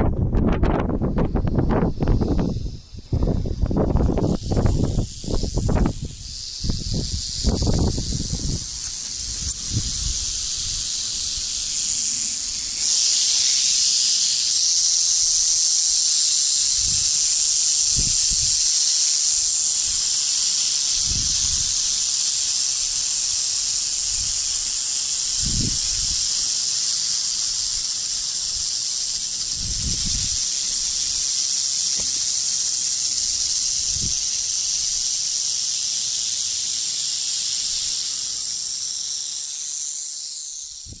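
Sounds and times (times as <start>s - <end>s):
rattlesnakes rattling: 0.0s - 41.0s.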